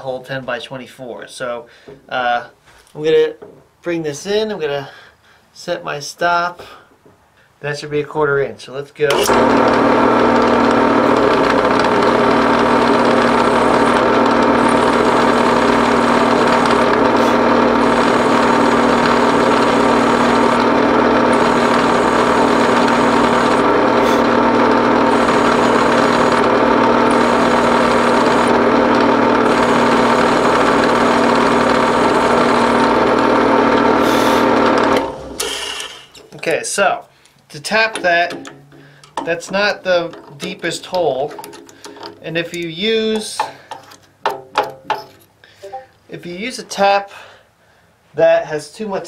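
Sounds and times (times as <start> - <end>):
drill cutting into cast iron: 9.1 - 36.2
drill press running: 9.1 - 36.2.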